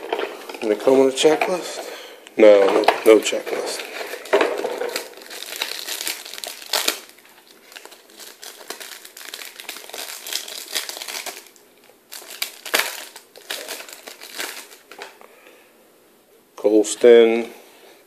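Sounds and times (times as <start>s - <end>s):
foil wrapper crinkling: 2.7s - 15.2s.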